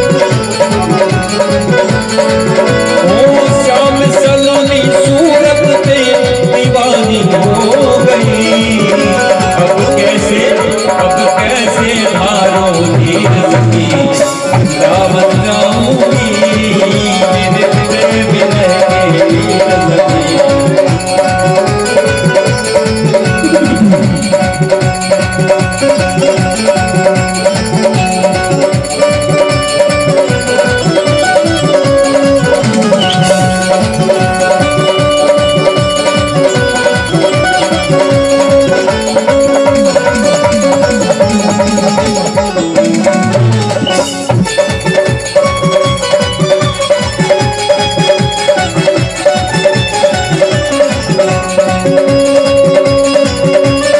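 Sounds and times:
electronic keyboard melody: 0:00.0 - 0:53.9
indian banjo melody: 0:00.0 - 0:53.9
steady beat: 0:00.0 - 0:53.9
held drone note: 0:23.2 - 0:25.3.

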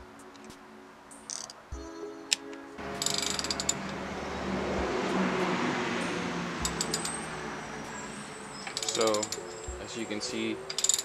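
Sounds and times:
ratchet wrench clicks: 0:01.3 - 0:01.6, 0:03.0 - 0:03.8, 0:06.6 - 0:07.3, 0:08.7 - 0:09.4, 0:10.7 - 0:11.0
piston rings scraping in bores: 0:02.9 - 0:04.0, 0:06.6 - 0:09.8, 0:10.4 - 0:11.0.

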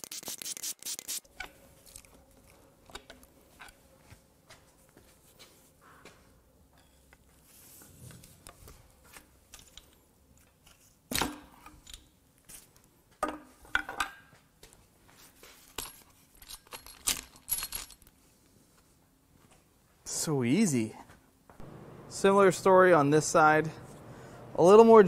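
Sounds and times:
metal tools and parts clinking: 0:15.6 - 0:18.2.

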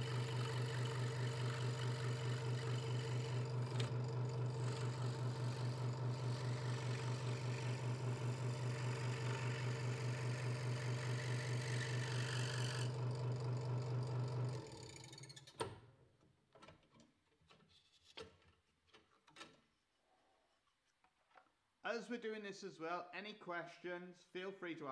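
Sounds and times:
saw blade cutting wood: 0:00.0 - 0:13.0
scroll saw humming: 0:00.0 - 0:15.3.

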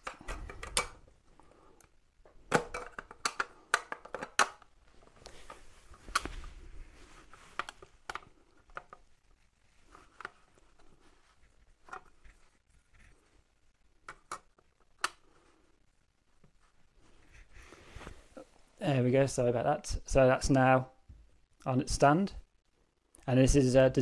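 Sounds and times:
plastic parts clicking and knocking: 0:00.0 - 0:01.1, 0:01.8 - 0:06.4, 0:07.5 - 0:09.1, 0:14.0 - 0:15.3.

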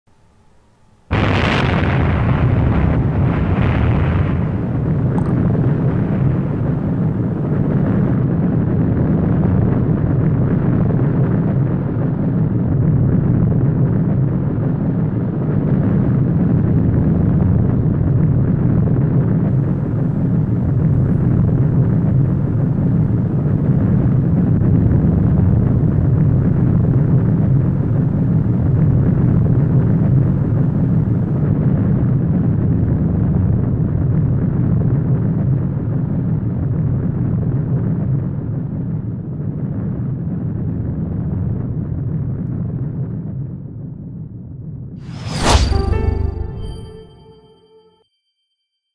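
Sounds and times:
low rumbling roar: 0:01.1 - 0:34.9
explosion blast: 0:01.1 - 0:35.6, 0:45.0 - 0:47.8.

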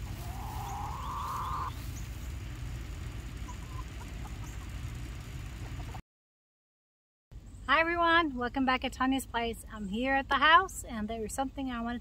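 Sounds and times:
chickens clucking: 0:00.0 - 0:02.4, 0:03.3 - 0:06.0.

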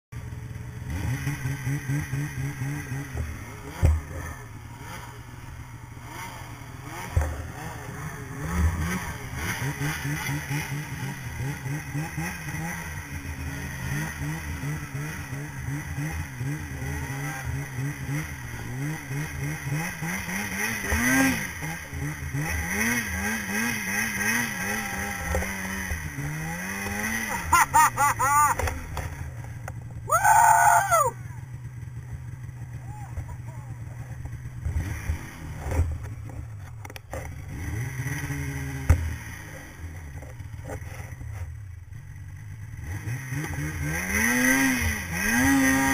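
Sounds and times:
snowmobile engine revving: 0:00.3 - 0:45.9.

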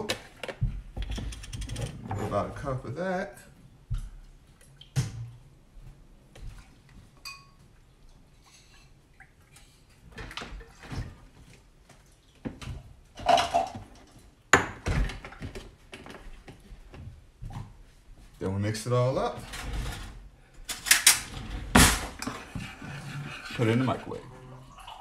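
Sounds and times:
kitchenware clinking: 0:07.2 - 0:07.6, 0:13.2 - 0:15.3.

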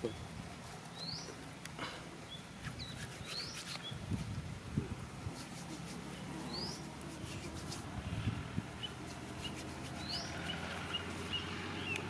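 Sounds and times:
bird chirping: 0:00.9 - 0:01.4, 0:02.2 - 0:04.0, 0:06.1 - 0:07.8, 0:08.8 - 0:12.0
low steady background rumble: 0:03.8 - 0:12.0.

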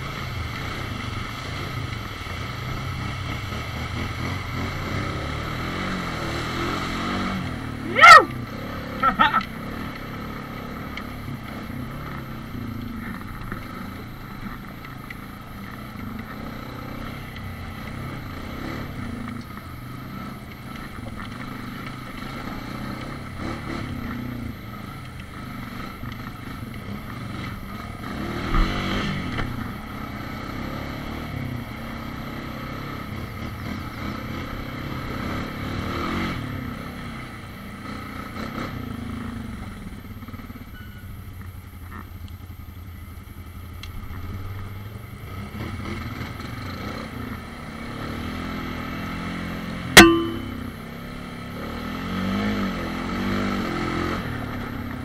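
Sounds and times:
quad engine running: 0:00.0 - 0:40.6
sharp knock: 0:50.0 - 0:50.7.

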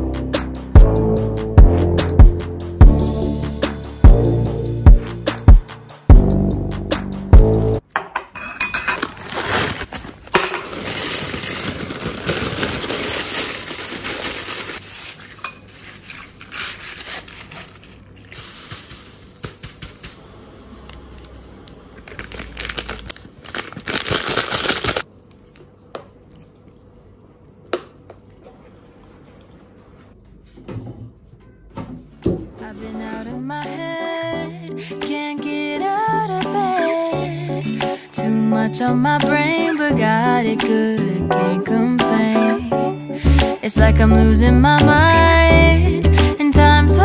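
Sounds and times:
cereal pouring into a ceramic bowl: 0:10.6 - 0:15.1.

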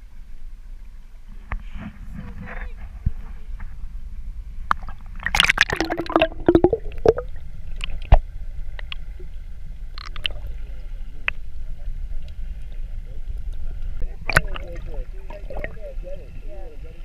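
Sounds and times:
low underwater rumble: 0:00.0 - 0:17.0
bubbles gurgling underwater: 0:04.8 - 0:08.3, 0:14.0 - 0:15.9.

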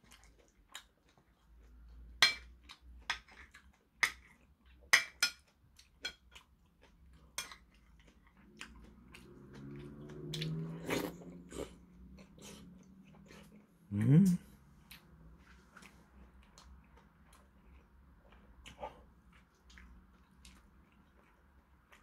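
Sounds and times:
man humming: 0:13.9 - 0:14.6.

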